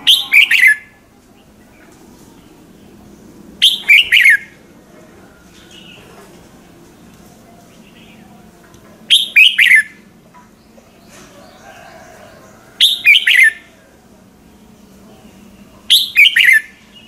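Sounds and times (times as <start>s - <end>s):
bird singing: 0.0s - 4.6s, 9.1s - 17.0s.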